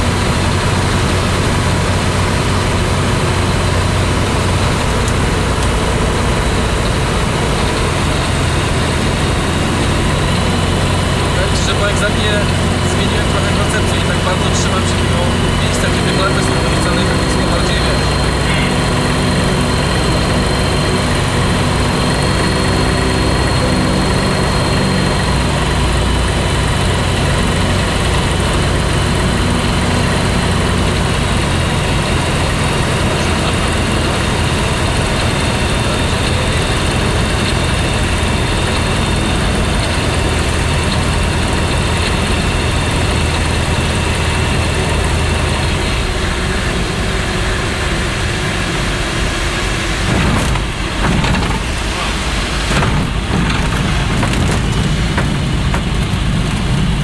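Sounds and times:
propeller aircraft engine running: 0:00.0 - 0:57.0.

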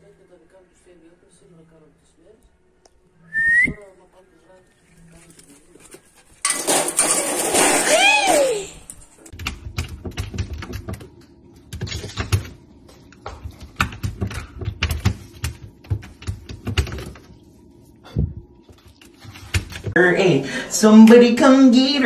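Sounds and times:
puppy claws clicking and scrabbling: 0:08.9 - 0:17.3, 0:18.7 - 0:20.0.

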